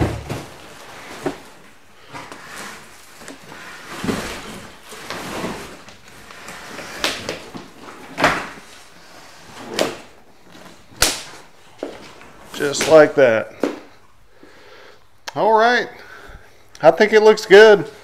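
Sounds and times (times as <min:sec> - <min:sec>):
sharp knocks and thumps: 0:00.0 - 0:00.6
cardboard scraping and rustling: 0:00.0 - 0:10.9.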